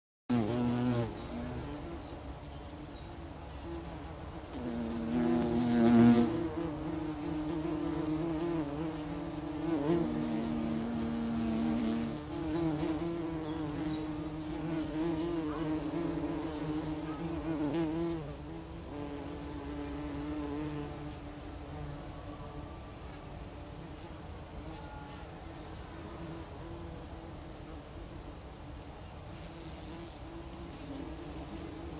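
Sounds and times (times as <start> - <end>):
bumblebees buzzing: 0.3 - 22.0, 29.3 - 31.9.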